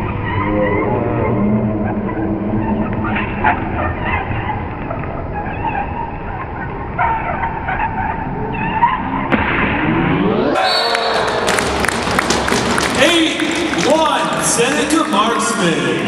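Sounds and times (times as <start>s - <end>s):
rising whoosh: 9.0s - 11.8s.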